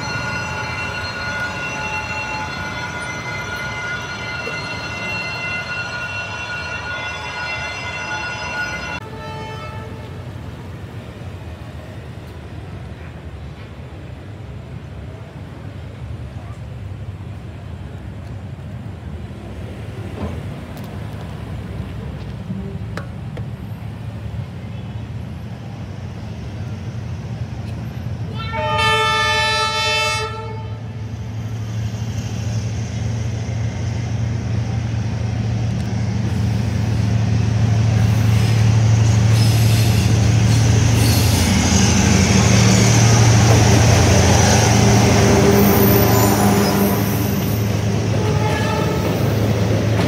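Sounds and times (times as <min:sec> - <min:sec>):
locomotive horn blast: 0:07.7 - 0:10.3, 0:28.3 - 0:30.9, 0:48.1 - 0:49.2
diesel locomotive rumble: 0:08.2 - 0:50.0.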